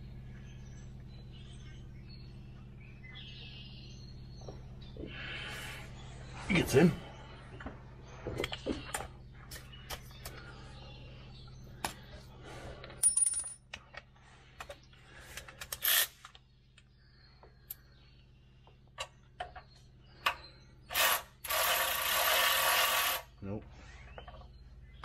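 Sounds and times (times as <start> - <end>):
metallic clinks of bolts and tools: 13.0 - 13.8
power tool whirring: 20.9 - 23.3.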